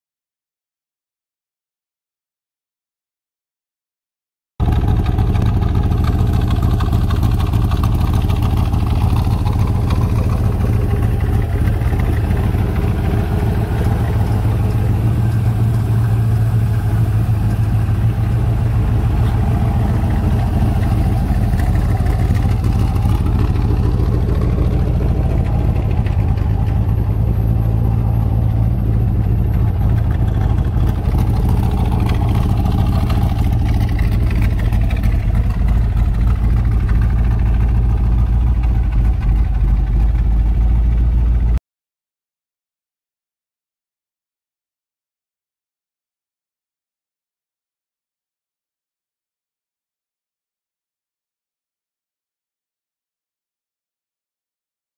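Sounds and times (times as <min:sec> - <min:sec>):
car engine idling: 0:04.6 - 0:41.6.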